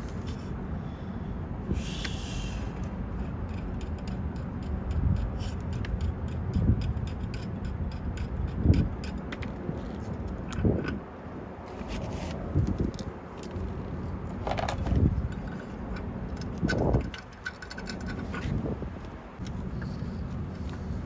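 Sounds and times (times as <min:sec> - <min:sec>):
steady low rumble: 0:00.0 - 0:21.0
small metal clicks and scrapes: 0:02.8 - 0:11.0, 0:14.3 - 0:20.9.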